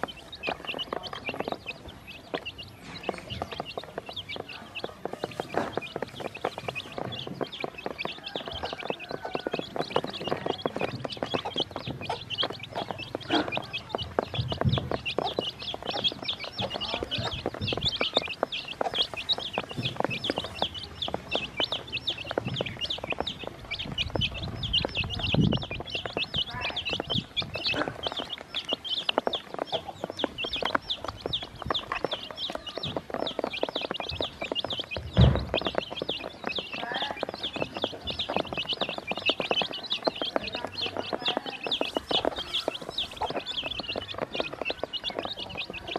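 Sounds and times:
chicks peeping: 0.0 - 45.9
low thumps: 33.9 - 44.6.

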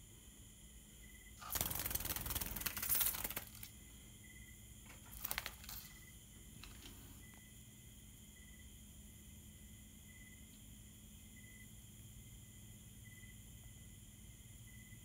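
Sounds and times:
bird wings fluttering: 1.4 - 3.8, 4.9 - 7.0.

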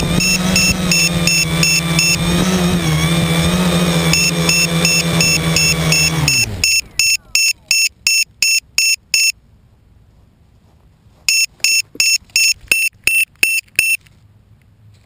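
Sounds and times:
piezo buzzer beeping: 0.1 - 2.3, 4.0 - 9.4, 11.3 - 14.0.

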